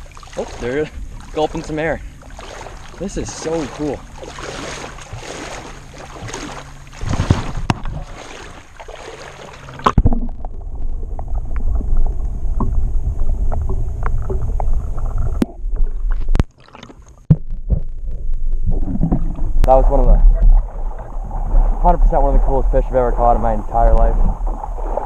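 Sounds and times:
river water splashing: 0.0 - 17.2, 19.2 - 25.0
muffled underwater rumble: 9.7 - 25.0.

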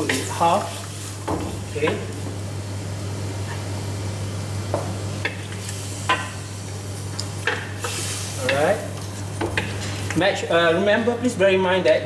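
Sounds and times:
light sizzle: 0.0 - 10.9
steady low hum: 0.0 - 12.0.

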